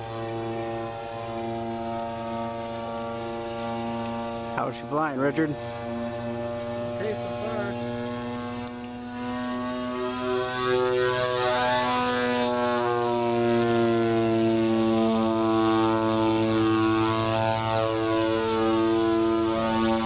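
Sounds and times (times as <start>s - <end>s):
model plane engines droning: 0.0s - 20.0s.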